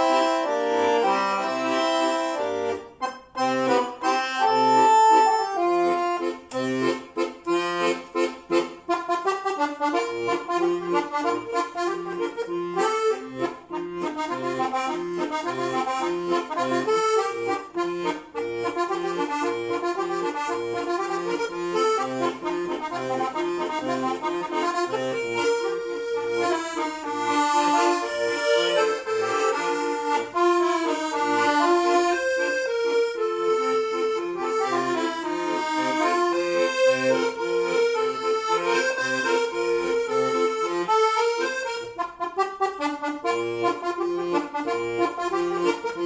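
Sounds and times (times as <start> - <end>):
accordion folk tune: 0.0 - 46.0.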